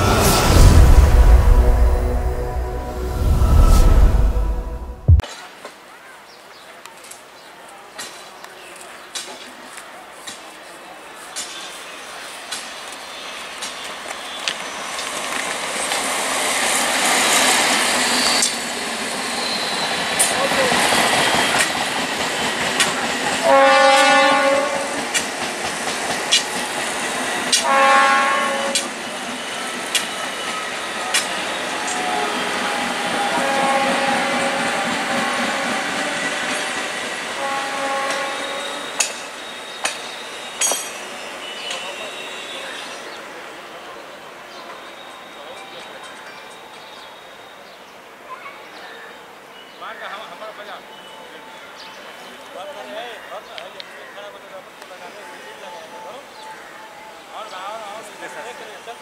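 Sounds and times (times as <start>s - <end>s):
train rumbling past: 0.0s - 5.2s, 13.2s - 44.9s.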